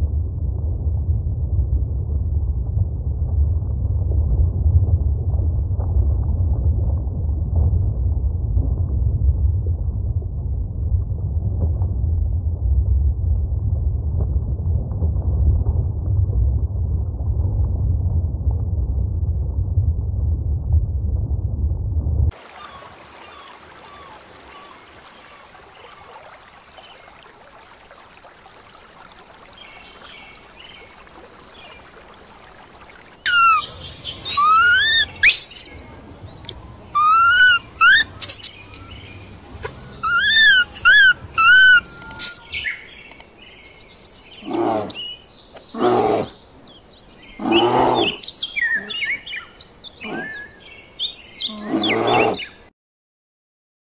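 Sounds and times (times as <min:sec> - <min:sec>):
harsh animal calls: 0:33.3 - 0:42.7, 0:44.4 - 0:45.1, 0:47.4 - 0:49.2, 0:50.0 - 0:50.4, 0:51.4 - 0:52.5
high-pitched animal calls: 0:33.3 - 0:42.7.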